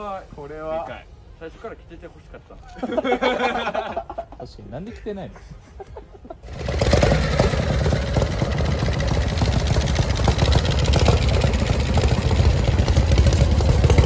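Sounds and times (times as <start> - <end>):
motorcycle engines idling: 6.1 - 14.0.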